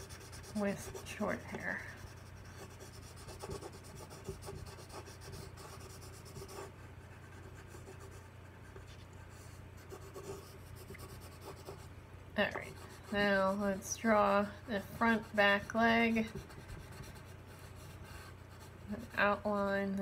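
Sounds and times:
colored pencil scratching on paper: 0:00.0 - 0:19.8.

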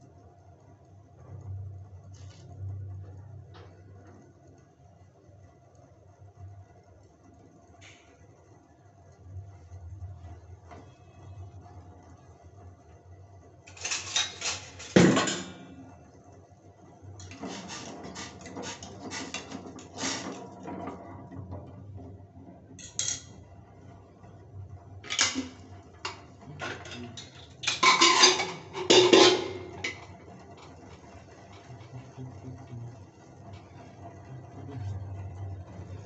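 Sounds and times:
eggs knocking in a metal pot: 0:25.0 - 0:30.8.

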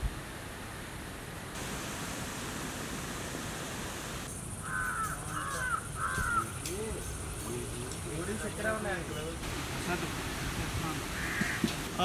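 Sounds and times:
steady background hiss: 0:00.0 - 0:12.0
crow cawing: 0:04.6 - 0:06.6, 0:11.2 - 0:11.8.

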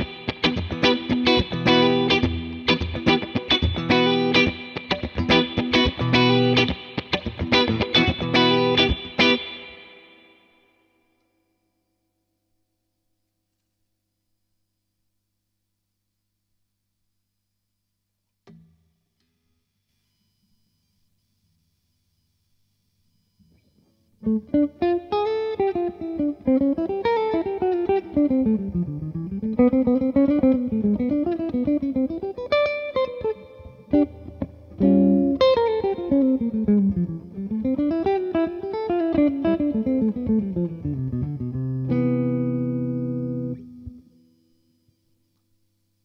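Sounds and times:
electric guitar playing fast runs: 0:00.0 - 0:10.1, 0:24.3 - 0:43.9.

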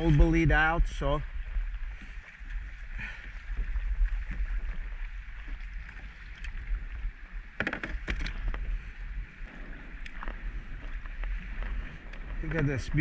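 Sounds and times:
waves lapping against hull: 0:00.0 - 0:13.0
wind buffeting microphone: 0:00.0 - 0:13.0.

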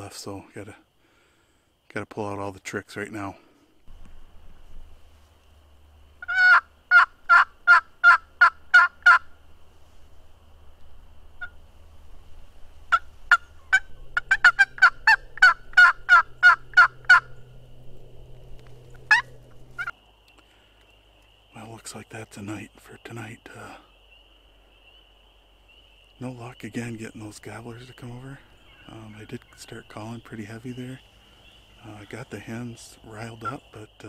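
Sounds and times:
turkey yelping: 0:06.2 - 0:09.3, 0:12.9 - 0:17.5, 0:18.6 - 0:19.9.

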